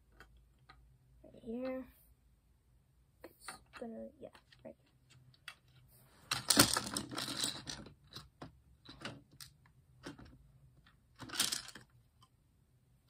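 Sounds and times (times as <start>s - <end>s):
plastic bricks rustling: 6.3s - 10.4s, 11.2s - 11.9s
plastic bricks clicking: 6.3s - 12.3s.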